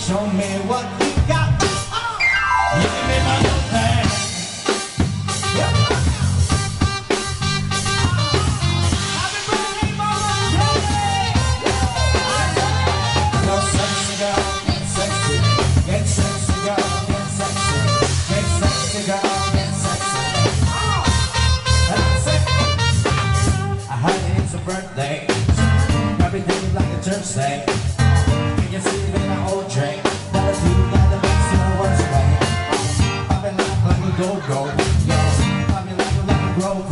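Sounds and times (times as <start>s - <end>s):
live dance band: 0.0s - 36.9s
drum kit beat: 1.0s - 36.9s
electronic keyboard: 2.2s - 4.4s.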